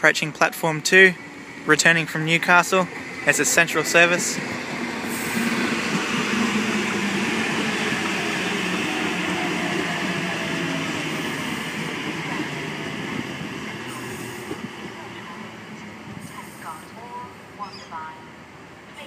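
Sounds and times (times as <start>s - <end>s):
train wheels rumbling: 0.0s - 17.5s.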